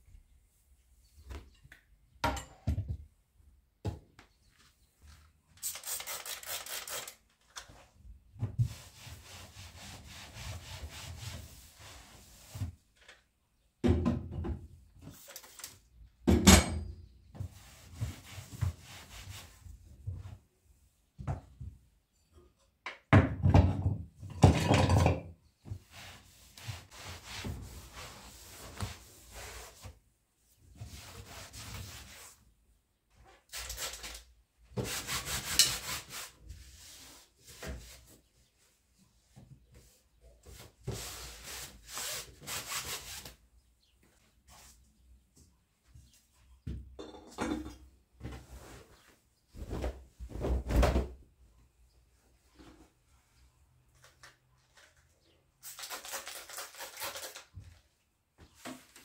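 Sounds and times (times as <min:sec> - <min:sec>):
rubbing and scraping on wood: 0:34.8 - 0:38.3.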